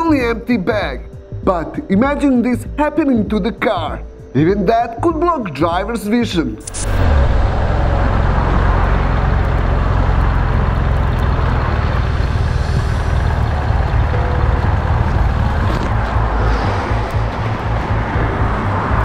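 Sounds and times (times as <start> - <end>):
wind and road noise: 6.6 - 19.0
wind buffeting rumble: 6.7 - 19.0.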